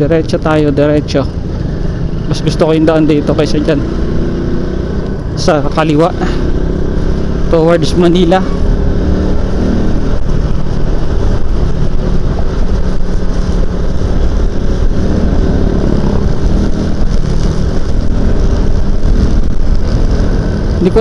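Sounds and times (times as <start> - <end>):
motorcycle engine running: 0.0 - 21.0
wind buffeting microphone: 8.6 - 21.0.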